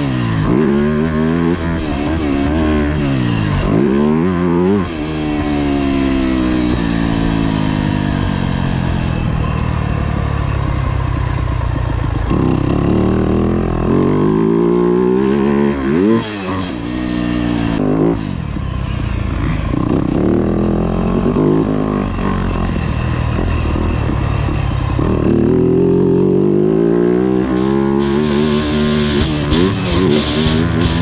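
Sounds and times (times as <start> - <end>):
motorcycle engine revving: 0.0 - 31.0
guitar music: 27.3 - 31.0.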